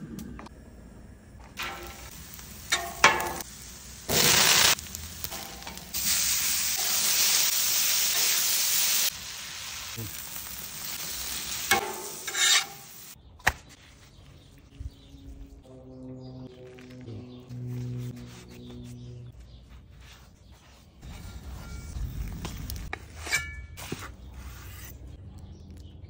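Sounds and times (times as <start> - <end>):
food sizzling on griddle: 1.6 - 13.2
metal spatulas scraping and clacking: 11.7 - 12.9, 22.9 - 25.0.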